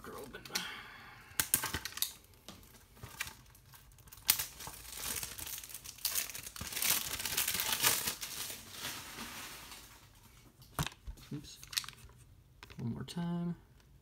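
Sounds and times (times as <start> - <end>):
shrink-wrap crinkling and tearing: 1.3 - 12.1.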